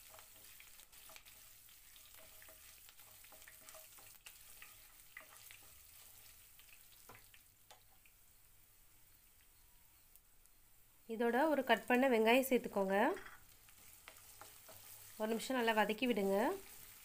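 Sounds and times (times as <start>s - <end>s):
wooden spatula scraping pan: 0.0s - 6.4s, 13.2s - 17.0s
small crackles: 0.0s - 8.2s, 9.0s - 10.6s, 13.0s - 17.0s
faint sizzling of frying spices: 0.0s - 17.0s.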